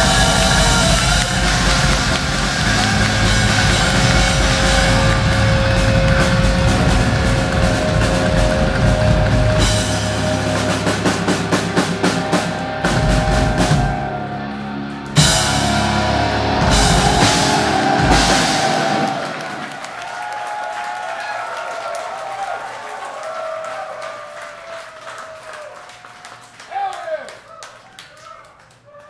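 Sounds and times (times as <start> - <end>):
cymbals ringing: 0.0 - 19.7
live hard rock band: 0.0 - 19.8.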